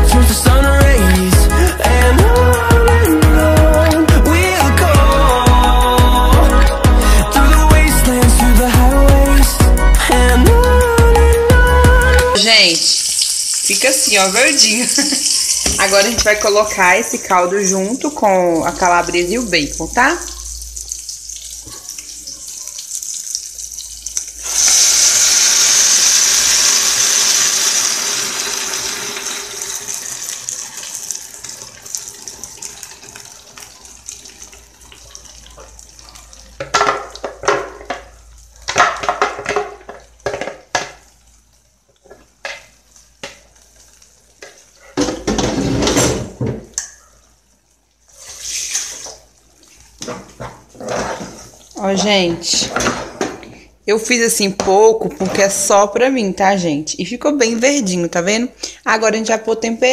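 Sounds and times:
soup pouring into a saucepan: 0:12.4 - 0:46.2, 0:47.6 - 0:51.8.

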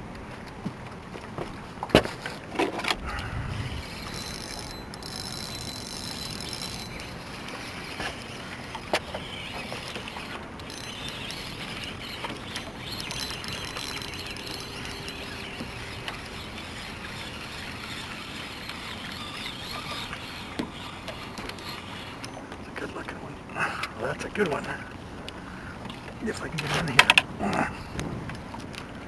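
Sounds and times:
wind and water hiss: 0:00.0 - 0:29.0
fishing reel clicking: 0:03.5 - 0:22.4.

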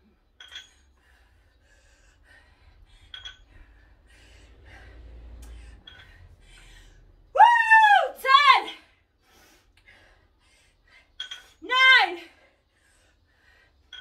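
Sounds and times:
light clinks: 0:00.4 - 0:01.0, 0:03.0 - 0:03.7, 0:11.2 - 0:11.6
person breathing heavily: 0:00.9 - 0:07.3
low rumble: 0:01.0 - 0:07.4.

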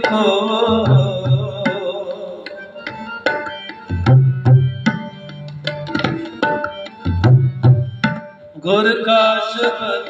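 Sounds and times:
tabla playing: 0:00.0 - 0:09.0
harmonium tones: 0:00.0 - 0:10.0.

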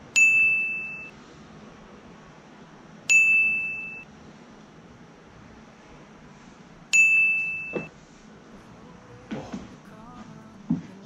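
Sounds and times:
high bell-like ding: 0:00.2 - 0:01.1, 0:03.1 - 0:04.0, 0:07.0 - 0:07.9.

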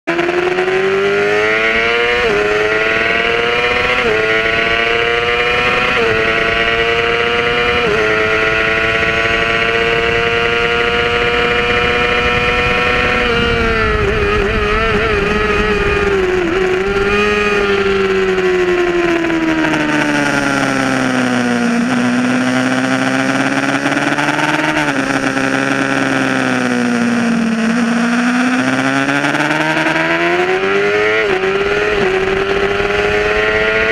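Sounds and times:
motorcycle engine revving: 0:00.0 - 0:33.9
wind rush: 0:02.1 - 0:21.3.

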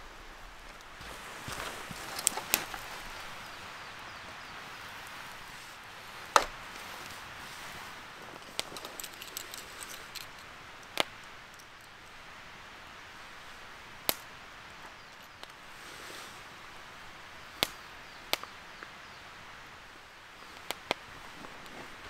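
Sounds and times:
soft hiss: 0:00.0 - 0:22.0
sharp cracks: 0:06.2 - 0:06.7.

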